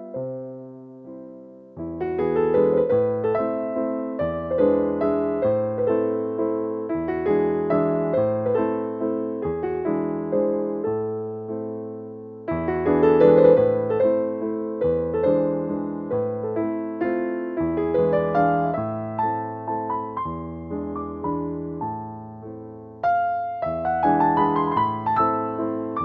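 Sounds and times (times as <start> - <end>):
piano music: 0.0 - 26.0.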